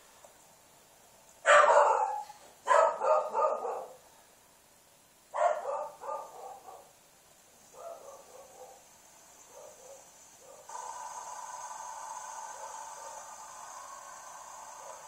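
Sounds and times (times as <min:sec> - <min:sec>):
dog barking: 0:01.4 - 0:04.0, 0:05.4 - 0:06.9, 0:07.7 - 0:08.8, 0:09.5 - 0:10.7.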